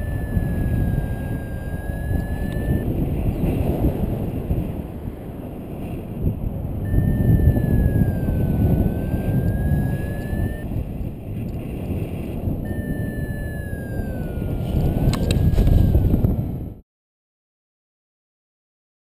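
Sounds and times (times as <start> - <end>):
high wavering electronic tone: 0.0 - 3.3, 6.8 - 10.8, 12.6 - 16.0
wind rushing over microphone: 0.0 - 16.8
clicks: 0.1 - 2.8, 15.0 - 15.9.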